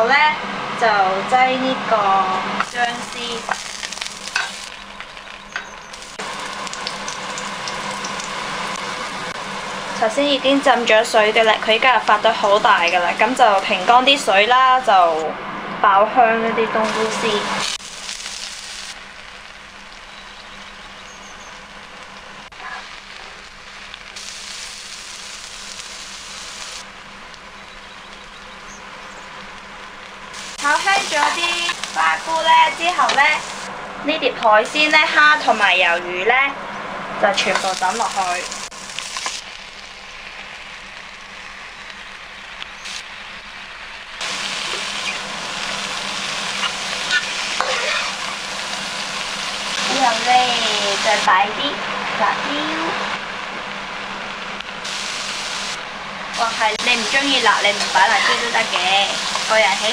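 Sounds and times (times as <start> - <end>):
food sizzling in hot oil: 1.6 - 15.2, 16.8 - 36.3, 37.2 - 59.9
spatula stirring in a pan: 46.6 - 48.1.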